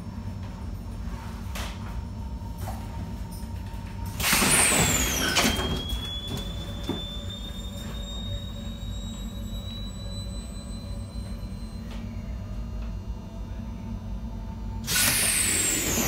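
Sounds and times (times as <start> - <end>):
low running hum: 0.0 - 16.0
train door hiss and whine: 2.6 - 12.9, 14.8 - 16.0.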